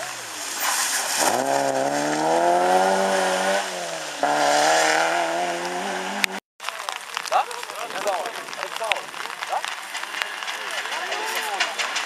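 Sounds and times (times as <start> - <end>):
rally car engine accelerating: 0.0 - 6.4.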